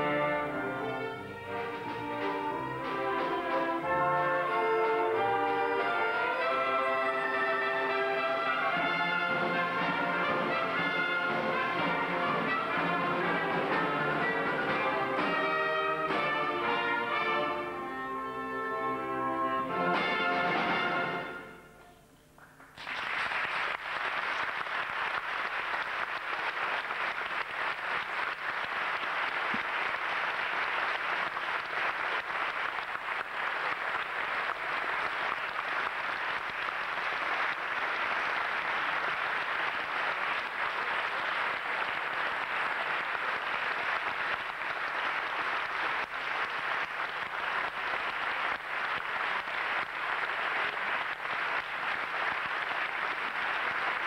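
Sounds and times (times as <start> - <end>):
audience applauding: 22.4 - 54.0.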